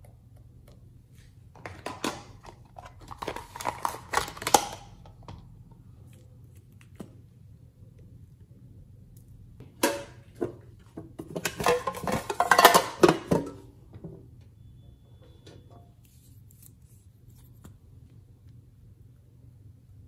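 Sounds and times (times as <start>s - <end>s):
plastic crinkling: 1.8s - 5.2s.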